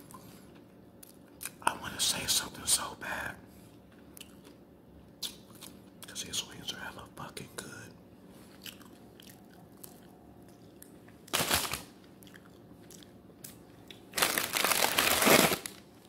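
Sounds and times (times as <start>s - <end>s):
soft chewing: 3.6s - 6.2s, 8.3s - 11.3s, 12.0s - 14.1s
loud crunching rustles: 14.2s - 15.8s.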